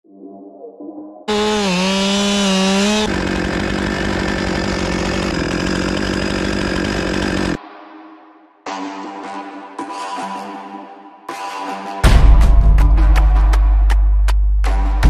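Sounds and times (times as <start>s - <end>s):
chainsaw cutting wood: 1.3s - 7.6s.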